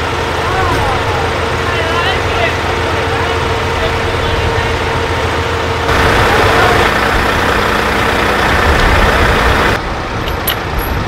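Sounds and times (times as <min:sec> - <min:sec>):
diesel engines idling: 0:00.0 - 0:10.8.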